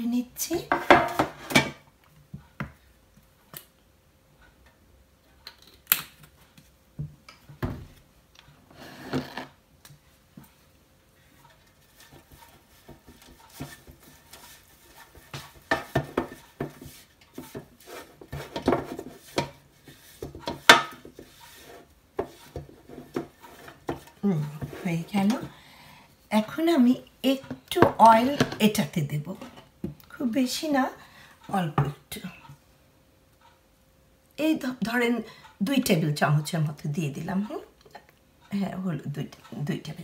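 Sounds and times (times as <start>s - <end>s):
pastry brush on metal tray: 11.2s - 25.6s.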